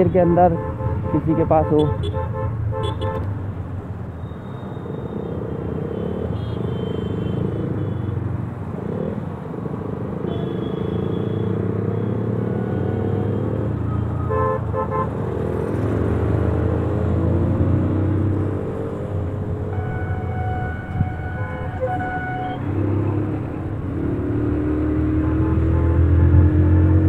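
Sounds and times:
road noise: 0.0s - 27.0s
vehicle horn beeps: 4.2s - 5.3s, 5.9s - 8.1s, 10.3s - 12.2s, 19.8s - 22.7s.

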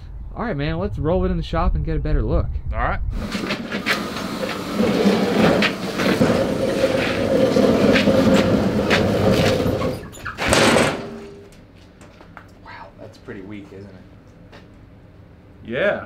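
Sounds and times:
small wheels scraping on concrete: 3.2s - 10.4s
go-kart frame rattling: 3.3s - 11.2s.

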